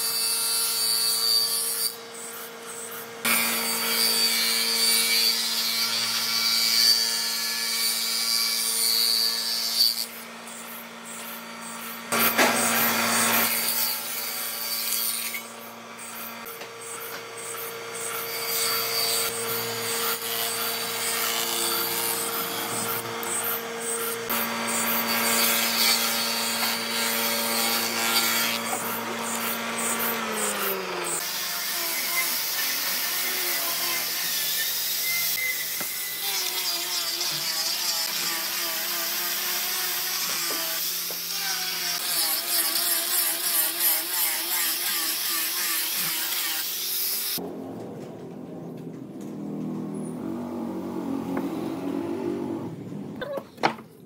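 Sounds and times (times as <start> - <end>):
power tool motor hum: 2.2 - 47.5
tool rasping against wood: 14.9 - 31.2.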